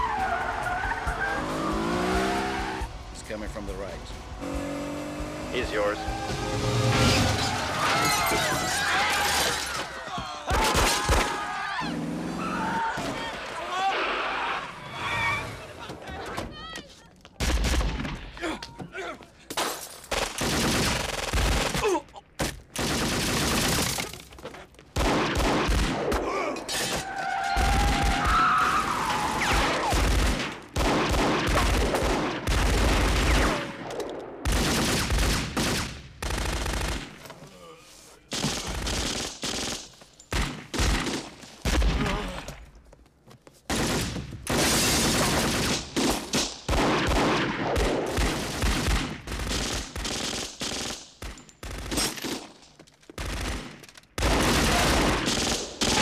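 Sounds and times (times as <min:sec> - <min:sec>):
rapid gunfire volleys: 0:20.1 - 0:24.1, 0:25.0 - 0:26.2, 0:29.4 - 0:37.2, 0:38.3 - 0:42.1, 0:43.7 - 0:52.5, 0:53.2 - 0:56.0.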